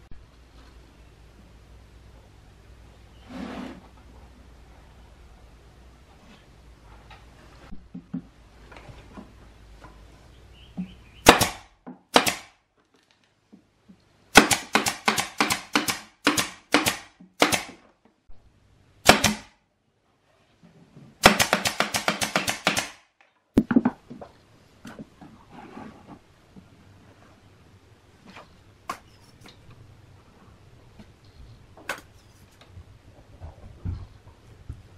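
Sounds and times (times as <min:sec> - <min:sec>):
pneumatic nailer firing into plywood: 0:11.2 - 0:12.6, 0:14.3 - 0:17.8, 0:19.0 - 0:19.6, 0:21.2 - 0:23.0.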